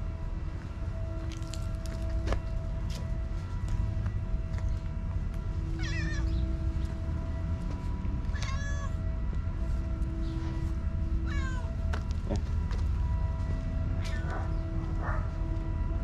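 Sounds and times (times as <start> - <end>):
cats meowing: 5.8 - 6.3, 8.3 - 8.9, 11.2 - 11.7.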